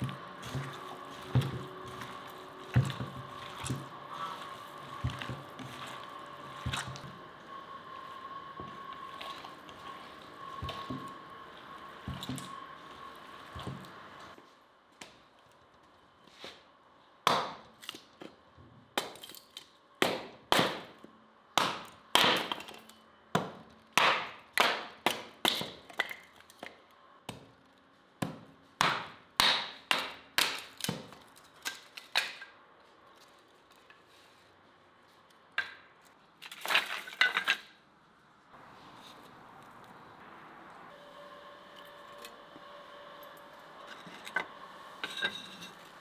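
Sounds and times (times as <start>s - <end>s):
hatchet chopping wood: 17.2s - 17.7s, 20.0s - 21.0s, 21.6s - 22.8s, 23.4s - 26.2s, 28.2s - 31.2s
wooden sticks clattering: 36.4s - 37.8s.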